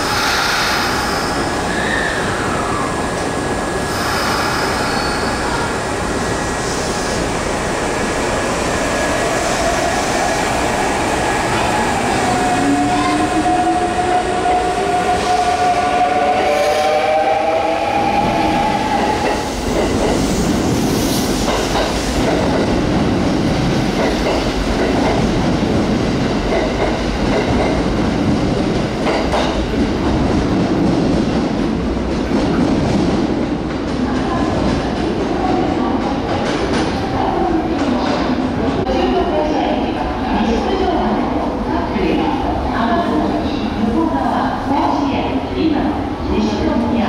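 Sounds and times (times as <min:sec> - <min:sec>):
train wheels rumbling on rail: 0:00.0 - 0:47.0
clickety-clack of rail joints: 0:21.4 - 0:23.0, 0:23.8 - 0:25.4, 0:26.4 - 0:31.5.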